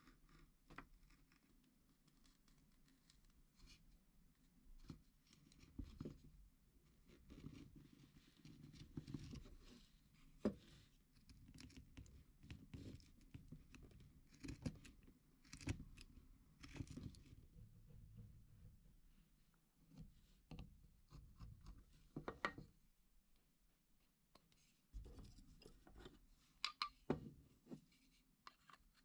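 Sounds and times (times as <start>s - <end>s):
faint scraping and rustling: 23.3s - 29.0s.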